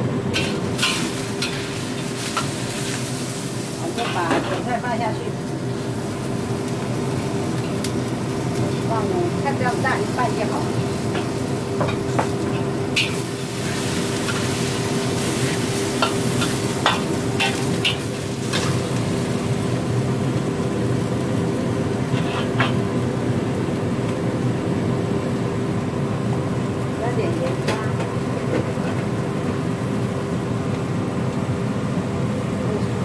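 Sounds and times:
steady hum: 0:00.0 - 0:28.5
food sizzling in a wok: 0:00.0 - 0:33.0
metal spatula scraping wok: 0:13.0 - 0:18.8, 0:22.1 - 0:22.8.

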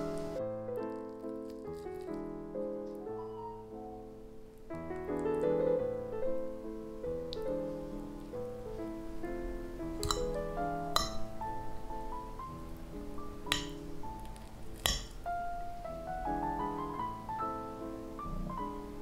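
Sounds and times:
background piano music: 0:00.0 - 0:19.0
fork clinking against plate: 0:10.0 - 0:10.4.

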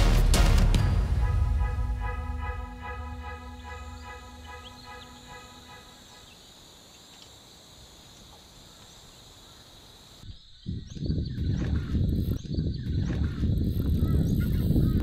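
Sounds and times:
intro music: 0:00.0 - 0:06.3
insects chorus: 0:02.4 - 0:15.0
bird chirps: 0:03.5 - 0:07.4, 0:10.3 - 0:15.0.

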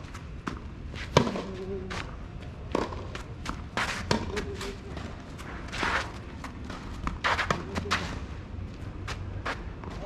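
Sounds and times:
racket hitting tennis ball: 0:00.5 - 0:01.6, 0:02.7 - 0:08.2
footsteps scuffing on court: 0:03.0 - 0:10.0.

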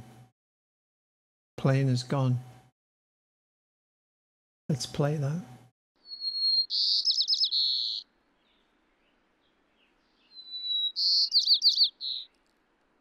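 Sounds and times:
sparrow singing: 0:06.0 - 0:12.5.

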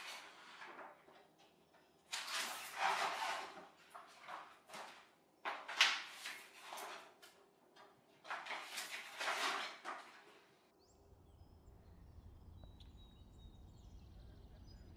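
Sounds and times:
stiff sheets rustling and crackling: 0:02.1 - 0:10.5.

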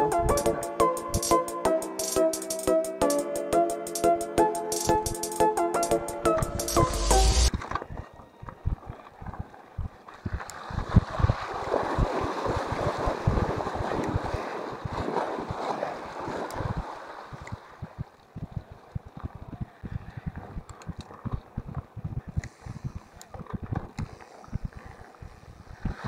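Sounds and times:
background music: 0:00.0 - 0:07.6
wind buffeting microphone: 0:09.7 - 0:15.6.

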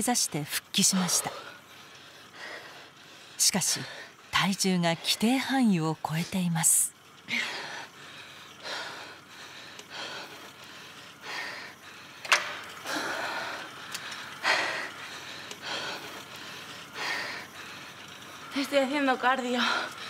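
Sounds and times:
woman breathing hard: 0:01.2 - 0:04.3, 0:07.3 - 0:18.5, 0:19.5 - 0:20.0.

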